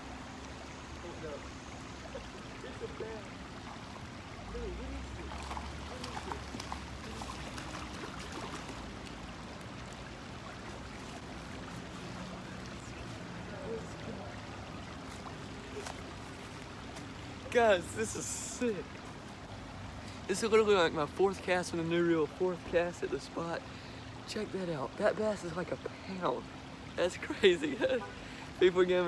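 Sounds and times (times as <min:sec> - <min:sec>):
creek running over rocks: 0:00.0 - 0:29.0.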